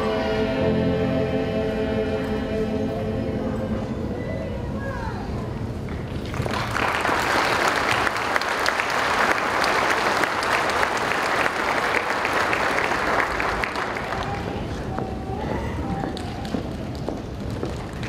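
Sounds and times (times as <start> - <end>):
audience applauding: 5.9 - 14.9.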